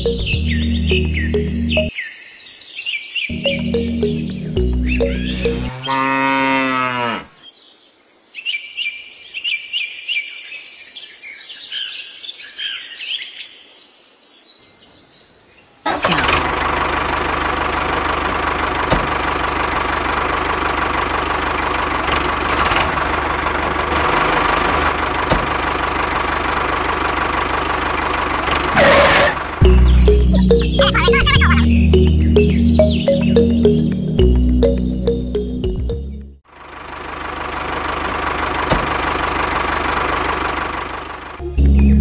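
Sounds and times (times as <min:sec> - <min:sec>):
tractor engine running: 0:00.0 - 0:01.9, 0:03.3 - 0:05.9, 0:15.9 - 0:42.0
birds chirping: 0:00.0 - 0:15.9, 0:28.8 - 0:36.3, 0:41.4 - 0:42.0.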